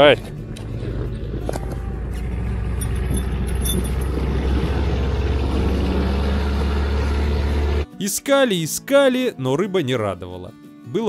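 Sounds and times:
outboard motor drone: 0.3 - 7.9.

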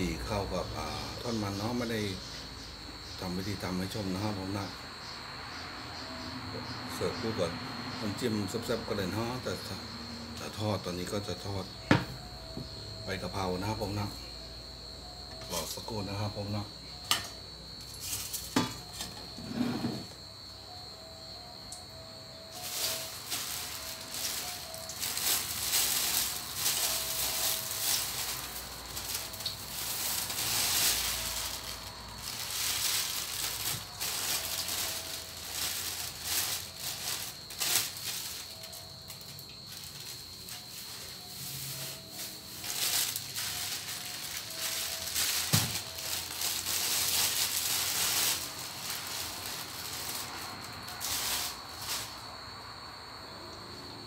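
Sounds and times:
oil sizzling and crackling in a wok: 22.6 - 38.5.

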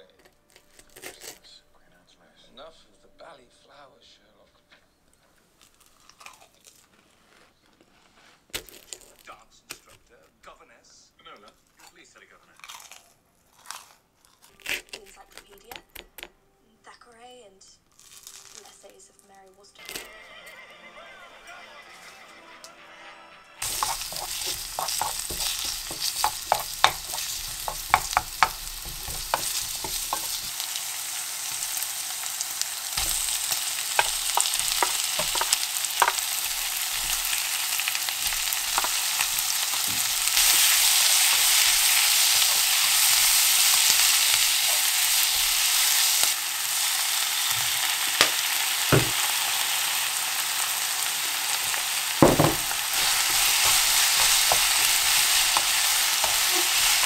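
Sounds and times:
spatula tapping pan: 23.6 - 30.6, 33.0 - 45.6, 51.7 - 57.0
food sizzling in a pan: 23.6 - 57.0.

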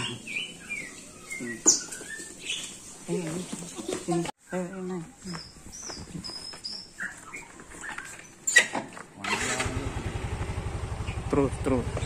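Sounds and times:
motorcycle engine running: 9.3 - 12.0
high bird chirps: 11.0 - 11.3.

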